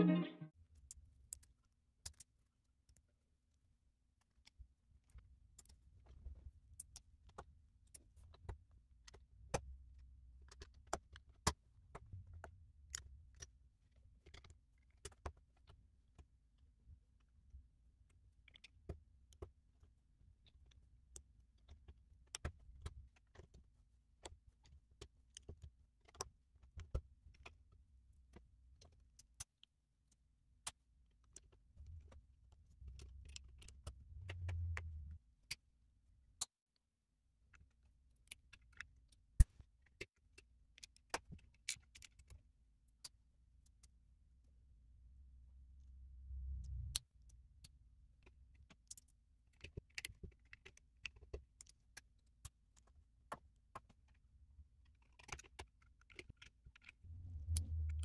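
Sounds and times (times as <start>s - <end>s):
low rumble of handling: 57.1s - 58.0s.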